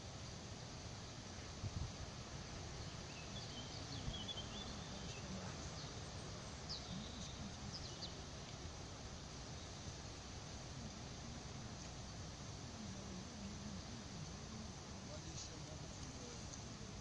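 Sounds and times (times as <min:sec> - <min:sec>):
outdoor background hiss: 0:00.0 - 0:17.0
faint bird chirps: 0:02.7 - 0:08.7.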